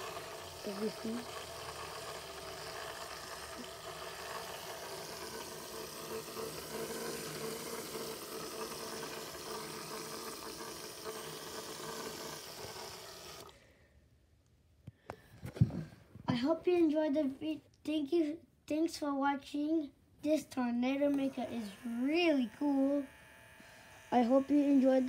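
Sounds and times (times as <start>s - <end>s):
motor whirring: 0.0s - 13.5s, 21.0s - 25.0s.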